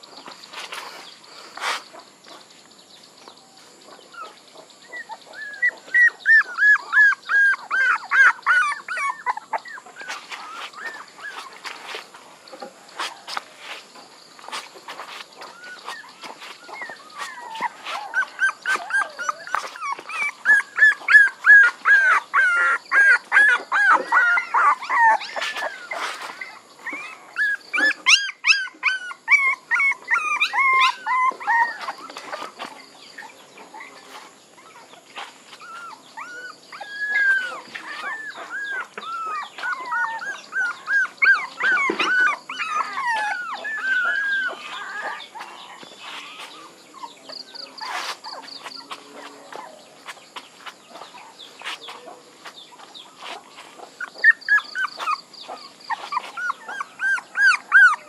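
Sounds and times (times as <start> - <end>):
puppy crying: 5.0 - 11.6, 15.5 - 32.6, 35.6 - 46.5, 54.0 - 58.0.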